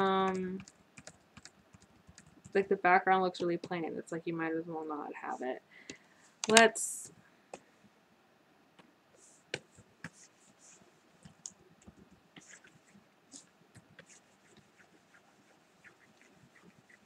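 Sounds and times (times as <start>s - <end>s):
light scratching strokes: 9.2s - 11.3s, 12.4s - 17.0s.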